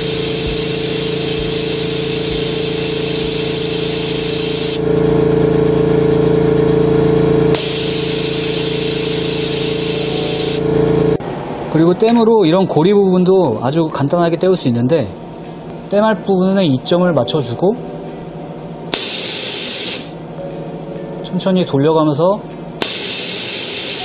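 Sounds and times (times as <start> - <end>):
laser welding machine hiss: 0.0 - 4.8, 7.6 - 10.7, 18.9 - 20.2, 22.8 - 24.0
low machine hum: 0.0 - 12.2, 15.1 - 24.0.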